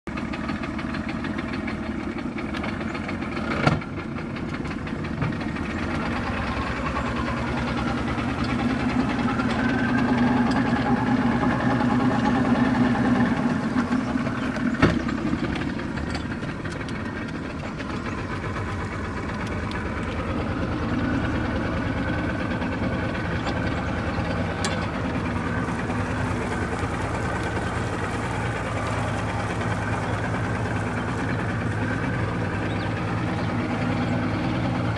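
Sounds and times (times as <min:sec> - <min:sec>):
outboard motor running: 0:00.0 - 0:34.9.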